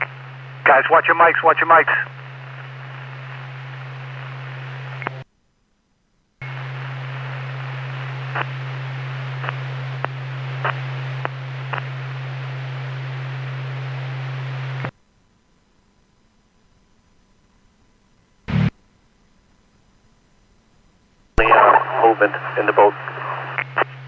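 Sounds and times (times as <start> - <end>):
radio static hiss: 0.0 - 5.3, 6.4 - 15.0, 18.4 - 18.8, 21.3 - 24.0
low hum: 6.2 - 14.9
faint radio clicks: 8.3 - 8.6, 9.4 - 11.9, 21.4 - 24.0.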